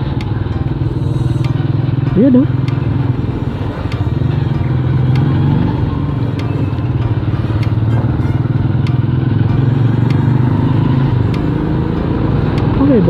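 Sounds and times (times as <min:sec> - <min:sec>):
faint sharp ticks: 0:00.0 - 0:05.4, 0:08.7 - 0:10.4
motorcycle engine running: 0:00.0 - 0:13.0.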